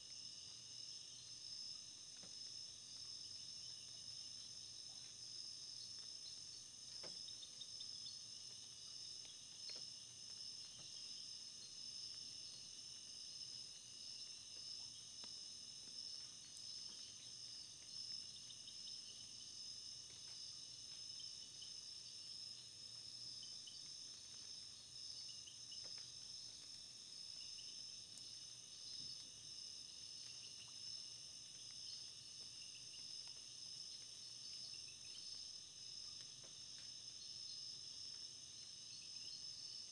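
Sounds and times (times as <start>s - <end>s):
insects trilling: 0.0s - 39.9s.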